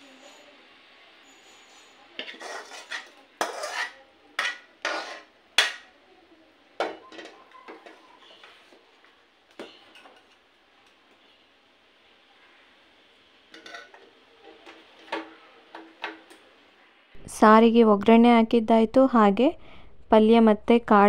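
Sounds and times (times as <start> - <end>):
spoon scraping metal pan: 2.2 - 5.9, 13.5 - 16.3.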